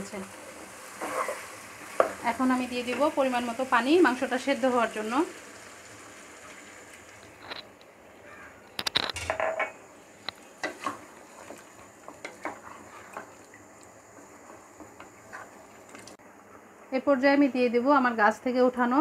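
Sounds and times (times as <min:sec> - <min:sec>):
wooden spatula scraping a pot: 0:00.9 - 0:02.2, 0:10.6 - 0:13.4, 0:14.2 - 0:16.2
water pouring into a pot: 0:03.1 - 0:07.4.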